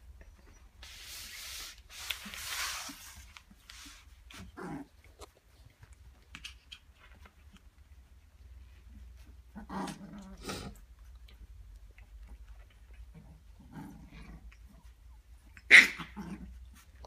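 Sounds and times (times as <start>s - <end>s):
fabric and fur rustling: 0.8s - 4.6s.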